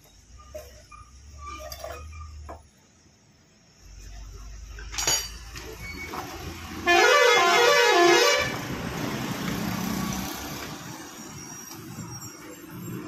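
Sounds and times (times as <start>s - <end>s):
vehicle hum: 2.8s - 13.0s
musical vehicle horn: 6.8s - 8.7s.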